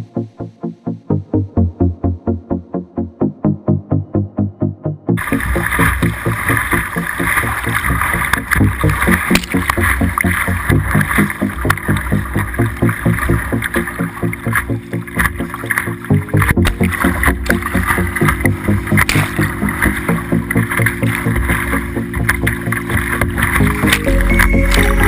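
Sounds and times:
low steady pulse: 0.0 - 25.0
whitewater rushing: 5.2 - 25.0.

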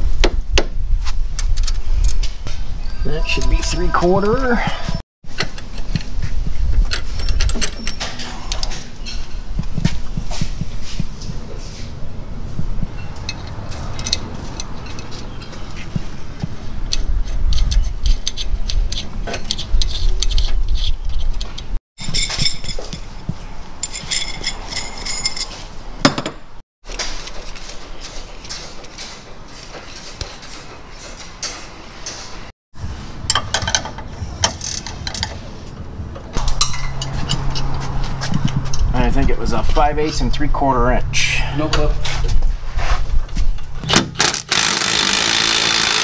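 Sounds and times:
metal hardware clinking: 23.8 - 26.3, 36.4 - 37.7
wrench turning on bolt: 44.2 - 46.0.

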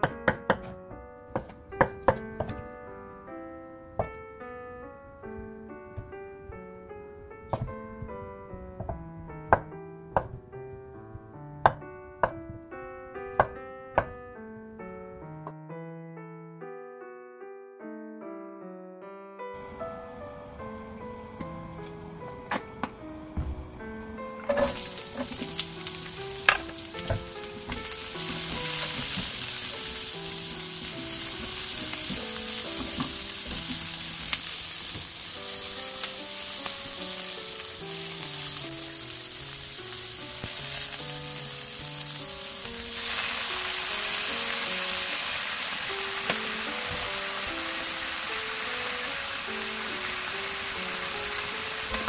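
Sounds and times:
vegetables sizzling in hot oil: 24.5 - 52.0.

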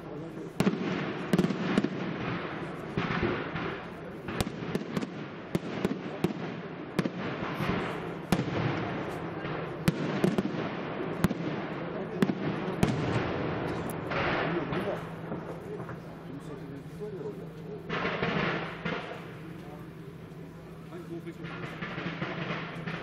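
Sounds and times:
firework shells bursting: 17.9 - 19.6, 21.3 - 23.0.

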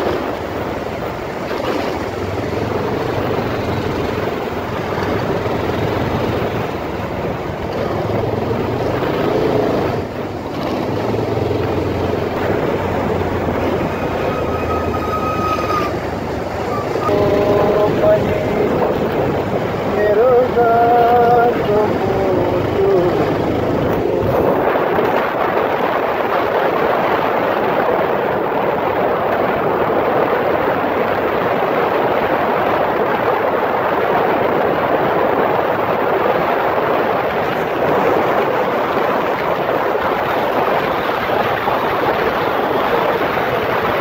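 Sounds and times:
motorcycle engine: 0.0 - 25.9
wind and road noise: 0.0 - 44.0.

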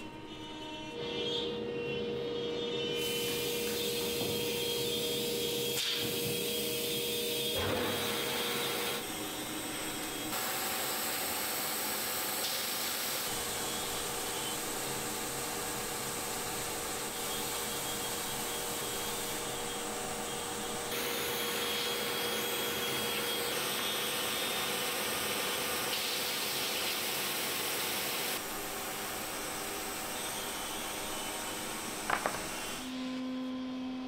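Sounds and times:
belt sander running: 7.6 - 33.0.

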